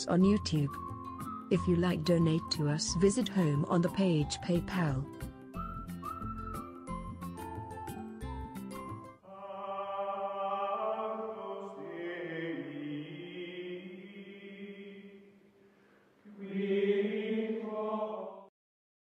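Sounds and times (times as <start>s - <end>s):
choir-like sustained chords: 9.2s - 15.2s, 16.3s - 18.5s.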